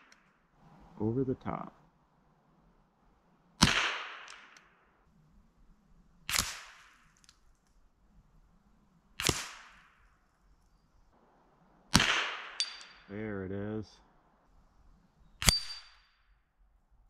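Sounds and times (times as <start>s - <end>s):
rifle shots: 3.6s - 4.8s, 6.2s - 7.2s, 9.2s - 10.0s, 11.9s - 13.0s.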